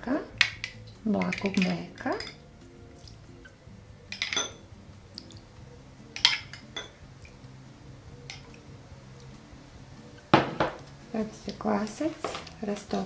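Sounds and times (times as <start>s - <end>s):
faint background music: 0.0s - 13.0s
spoon clinking glass bowls: 0.4s - 2.4s, 4.1s - 4.6s, 6.2s - 7.0s, 8.3s - 8.6s.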